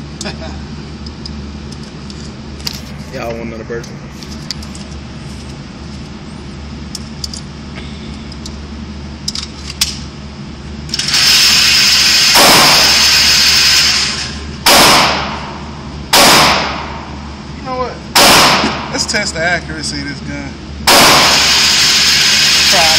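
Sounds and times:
gunshots echoing indoors: 12.3s - 13.2s, 14.6s - 17.1s, 18.1s - 19.0s, 20.8s - 22.2s.

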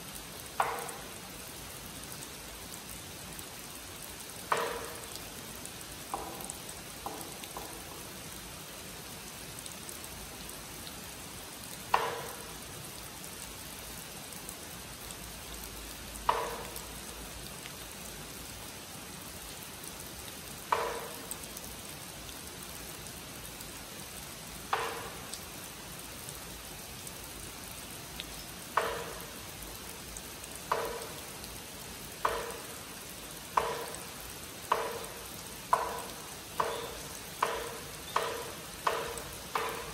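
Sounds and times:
rain hissing: 0.0s - 39.9s
wooden clapper knocks: 0.6s - 1.0s, 4.5s - 5.0s, 6.1s - 8.0s, 11.9s - 12.4s, 20.7s - 21.2s, 24.7s - 25.2s, 28.8s - 29.3s, 30.7s - 31.2s, 32.2s - 32.6s, 33.6s - 34.0s, 34.7s - 35.1s, 35.7s - 39.9s.

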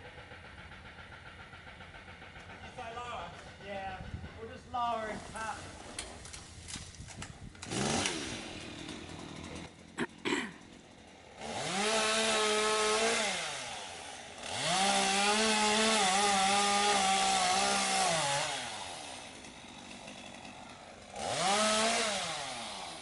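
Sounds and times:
chainsaw revving: 7.5s - 23.0s.

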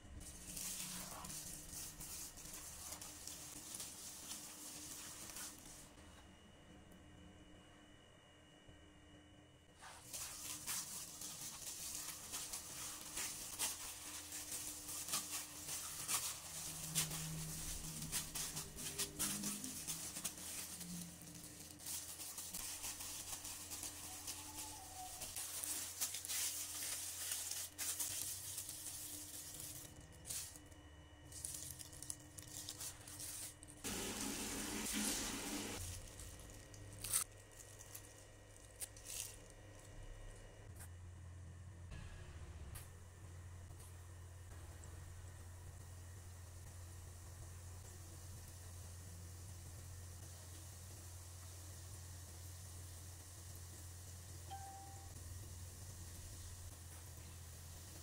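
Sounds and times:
plastic glove crinkling: 0.1s - 6.0s, 9.8s - 40.6s.

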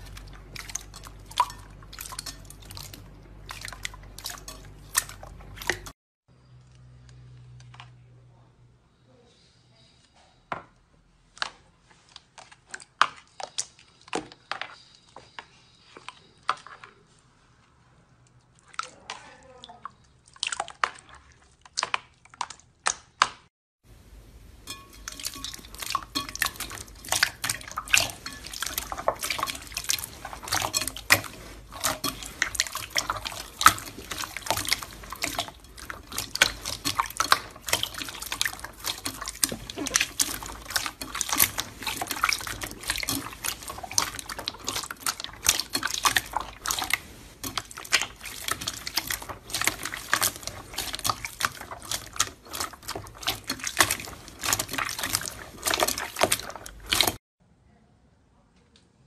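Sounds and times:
hands squishing slime: 0.0s - 5.9s, 24.7s - 57.2s.

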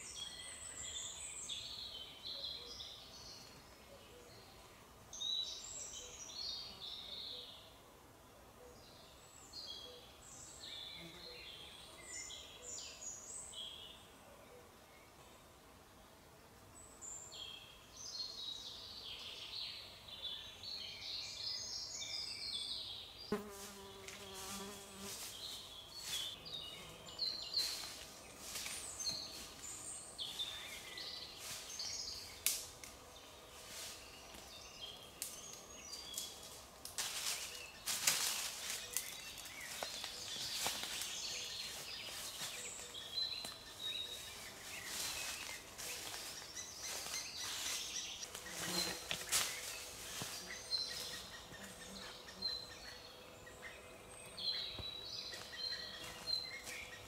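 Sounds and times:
small birds chirping: 16.8s - 57.0s
insect buzzing: 23.3s - 29.6s, 44.2s - 53.0s.

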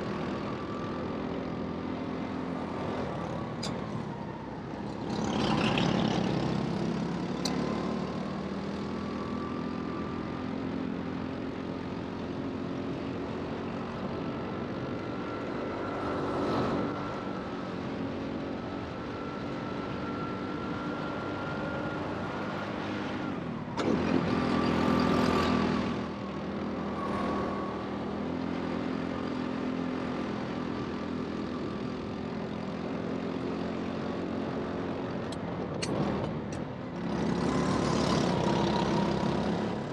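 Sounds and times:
go-kart motor revving: 37.0s - 39.9s.

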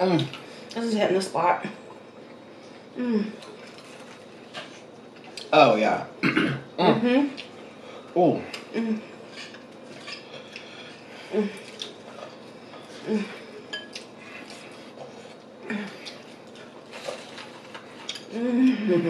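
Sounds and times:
chewing: 1.9s - 5.5s, 8.5s - 18.8s
people humming: 2.9s - 3.5s, 6.8s - 7.4s, 8.4s - 9.2s, 10.6s - 11.8s, 12.7s - 14.4s, 15.6s - 16.2s, 18.2s - 19.0s.

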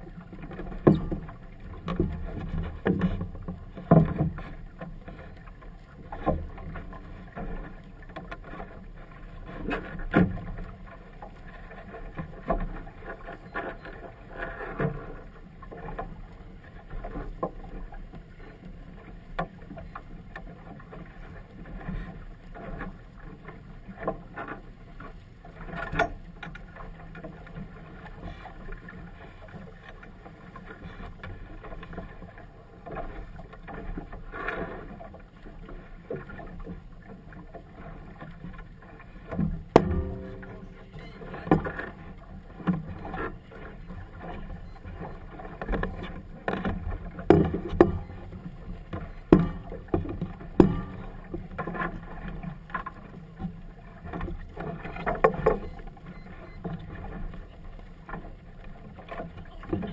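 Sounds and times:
water slapping boat hull: 0.0s - 59.9s
wind: 0.0s - 59.9s.

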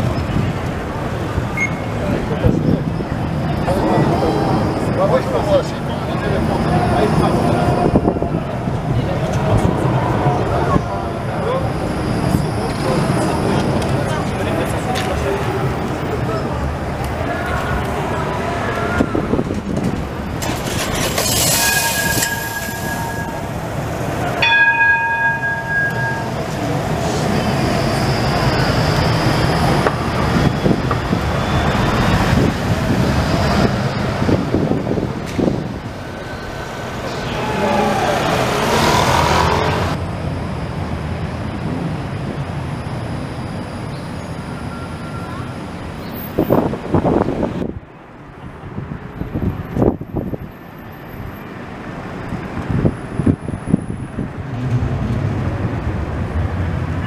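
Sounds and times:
street traffic noise: 0.0s - 57.0s
tram rolling past: 0.0s - 57.0s
tram warning horn: 21.6s - 29.1s.

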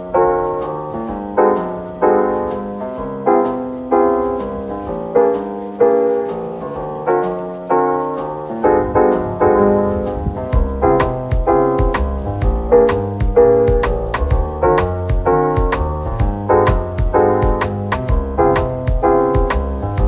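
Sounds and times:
piano chords: 0.0s - 20.0s
low bass line: 8.6s - 14.7s.

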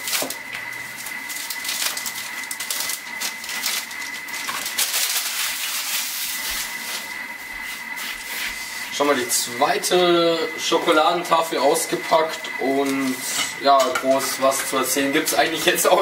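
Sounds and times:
chocolate wrapper crinkling: 1.3s - 6.4s.

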